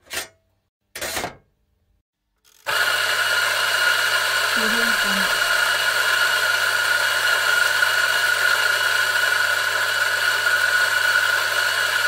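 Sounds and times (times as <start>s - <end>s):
coffee machine whirring hiss: 2.7s - 12.0s.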